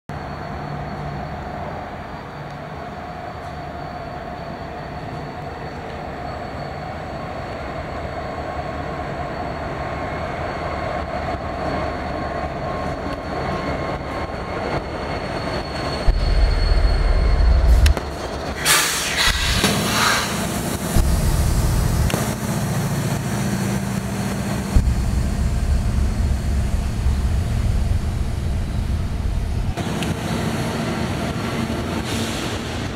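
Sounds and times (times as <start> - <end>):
freight train approaching: 0.1 - 32.9
locomotive deep rumble: 16.0 - 18.6, 20.3 - 32.0.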